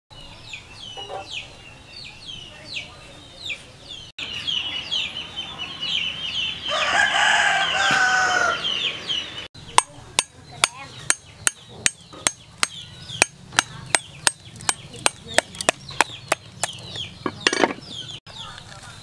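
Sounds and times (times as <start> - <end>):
rooster crowing: 6.6 - 9.0.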